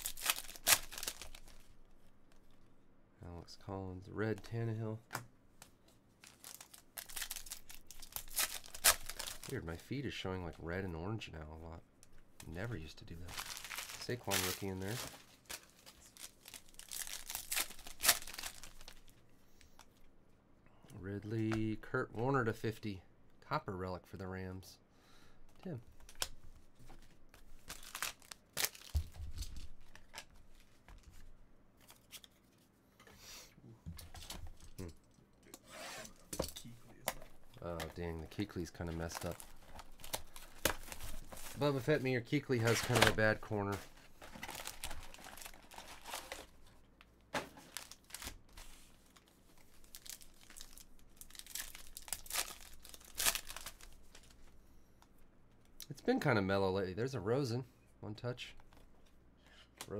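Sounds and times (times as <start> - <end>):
cards and wrapper crinkling: 0.0 - 1.7, 6.2 - 9.9, 12.4 - 19.9, 27.3 - 31.2, 37.1 - 46.7, 47.6 - 54.5.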